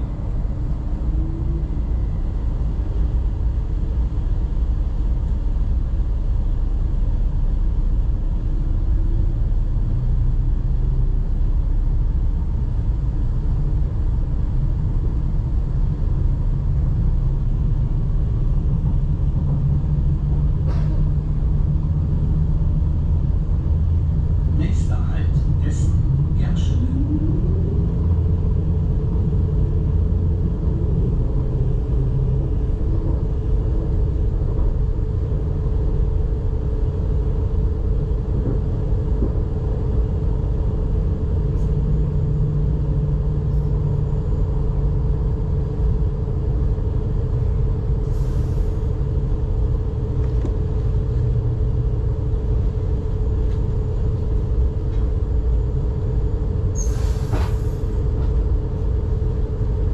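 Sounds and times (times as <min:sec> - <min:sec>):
train wheels rumbling: 0:07.8 - 0:59.9.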